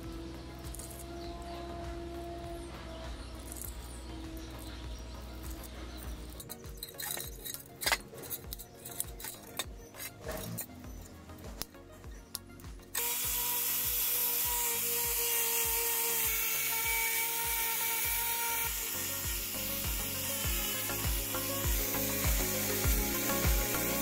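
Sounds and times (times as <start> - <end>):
angle grinder grinding metal: 0.0 - 11.7, 12.4 - 24.0
pliers clicking and scraping metal: 0.7 - 1.1, 3.4 - 3.8, 4.6 - 10.8.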